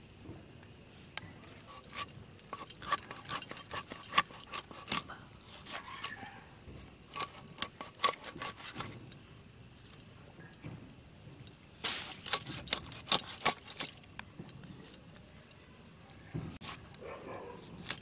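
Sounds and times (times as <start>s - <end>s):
knife scraping fish scales: 1.4s - 6.4s, 7.0s - 9.2s, 11.8s - 14.1s, 16.5s - 18.0s.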